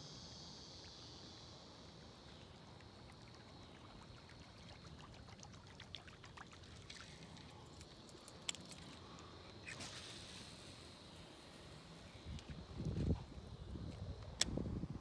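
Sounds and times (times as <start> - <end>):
faint insect trill: 0.0 - 15.0
water drips and ticks: 2.2 - 9.3.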